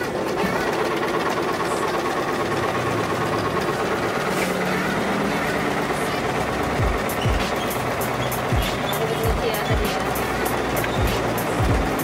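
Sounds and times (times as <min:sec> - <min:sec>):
sewing machine stitching: 0:00.0 - 0:12.0.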